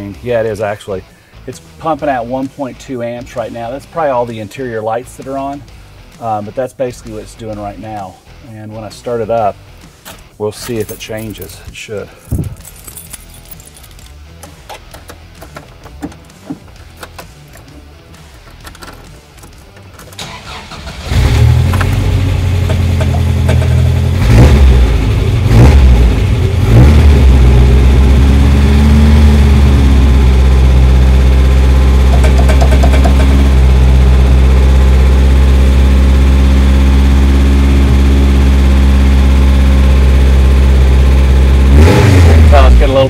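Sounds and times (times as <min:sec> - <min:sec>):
engine idling: 0:12.6 - 0:42.8
engine starting and revving: 0:20.1 - 0:34.4, 0:35.1 - 0:43.0.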